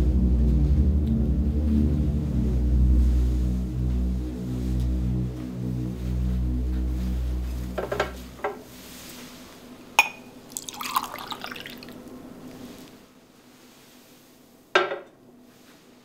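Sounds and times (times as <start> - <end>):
glass clinking: 10.0 - 12.0
liquid pouring into a glass: 10.5 - 12.2.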